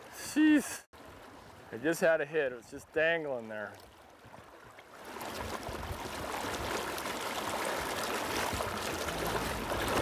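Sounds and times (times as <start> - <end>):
river current rushing: 5.0 - 10.0.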